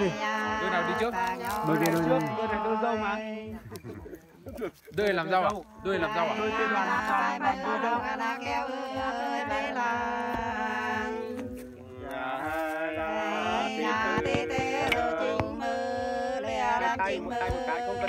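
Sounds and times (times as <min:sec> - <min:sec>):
two women singing: 0:00.0 - 0:04.4, 0:05.4 - 0:18.0.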